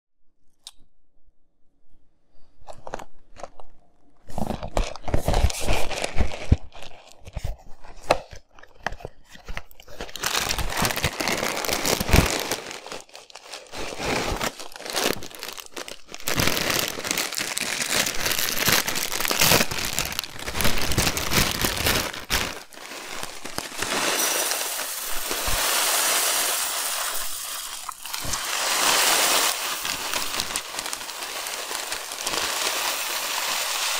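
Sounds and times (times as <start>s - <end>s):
cereal box being handled: 2.6s - 33.9s
plastic bag crinkling and tearing: 2.8s - 33.9s
cereal pouring into glass bowl: 10.2s - 33.9s.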